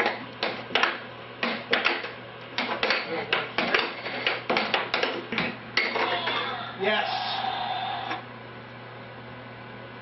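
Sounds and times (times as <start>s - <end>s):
air hockey puck and mallets clacking: 0.0s - 6.5s.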